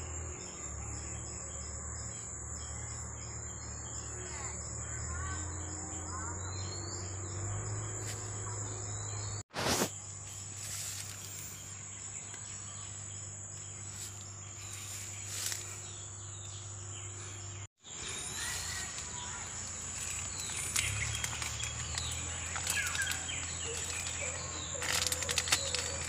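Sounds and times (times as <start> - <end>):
bird chirps: 0.0 - 26.0
insects buzzing: 0.0 - 26.0.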